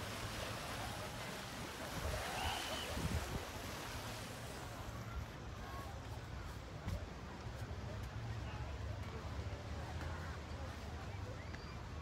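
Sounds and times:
wind rumbling on microphone: 0:00.0 - 0:04.8
sea waves washing: 0:00.0 - 0:05.3.

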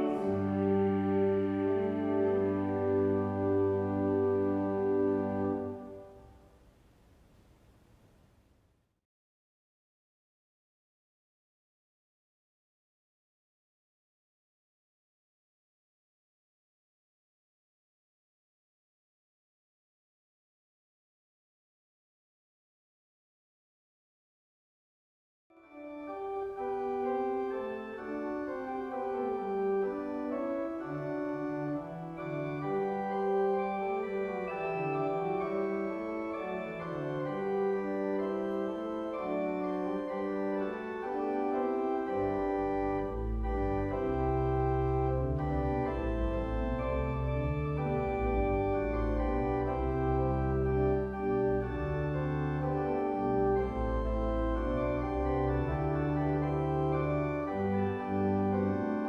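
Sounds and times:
deep organ bass notes: 0:00.0 - 0:06.2, 0:25.8 - 0:59.0
organ playing sustained chords: 0:00.0 - 0:06.5, 0:25.7 - 0:59.0.

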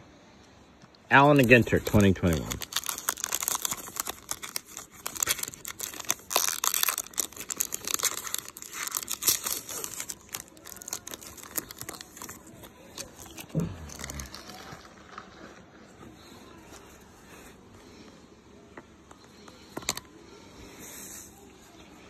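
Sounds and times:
wrapper crinkling and tearing: 0:01.2 - 0:16.3.

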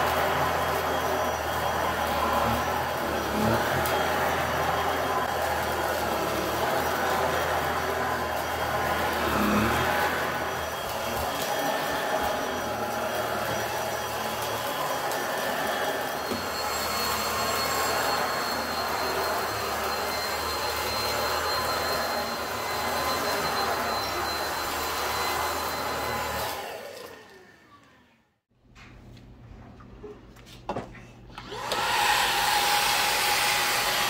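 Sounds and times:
high motor whine: 0:00.0 - 0:26.8
stick vacuum running on carpet: 0:00.0 - 0:28.0, 0:31.4 - 0:34.0.

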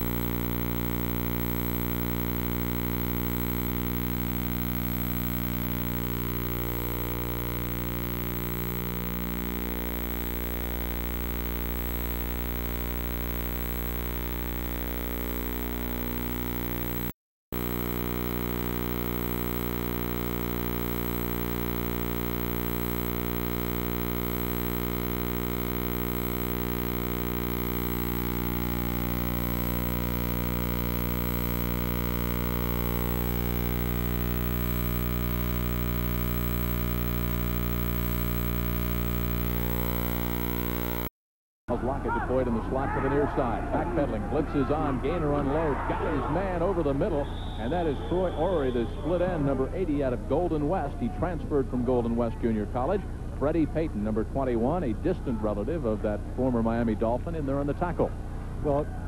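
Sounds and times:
electrical mains hum: 0:00.0 - 0:41.1.

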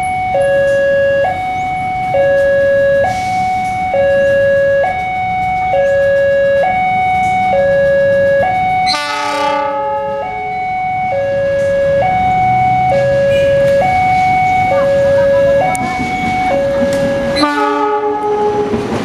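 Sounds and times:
train machinery rumble: 0:00.0 - 0:19.0
two-tone crossing alarm: 0:00.0 - 0:19.0
locomotive horn blast: 0:08.8 - 0:10.5, 0:12.6 - 0:13.9, 0:14.6 - 0:18.9.

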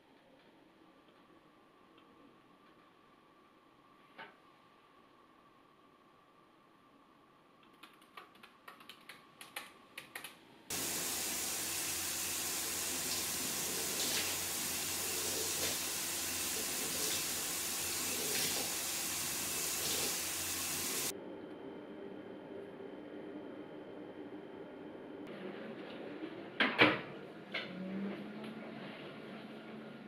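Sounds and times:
typing on laptop keyboard: 0:07.6 - 0:10.4
shower water spray hissing: 0:10.7 - 0:21.1.

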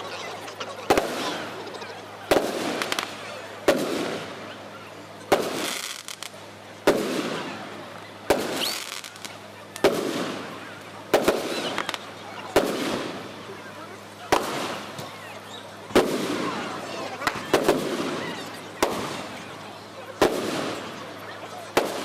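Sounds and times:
firework crackle and rumble: 0:00.0 - 0:22.0
firework shells bursting: 0:02.3 - 0:04.4, 0:05.3 - 0:07.5, 0:08.3 - 0:10.5.

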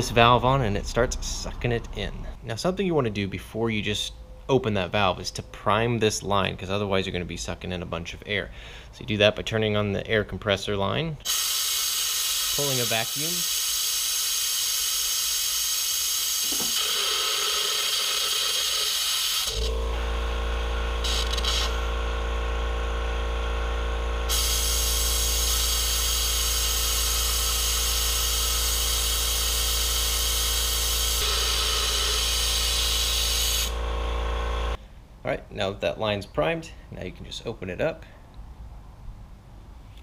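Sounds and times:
compressed air hissing: 0:11.2 - 0:19.8, 0:21.0 - 0:22.0, 0:24.3 - 0:33.9
air compressor motor hum: 0:11.2 - 0:34.8.

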